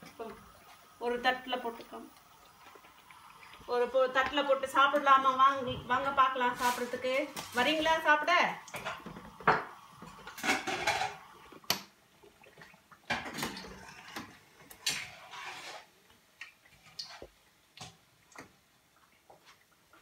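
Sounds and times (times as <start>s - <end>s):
dishes clinking: 10.3s - 11.2s.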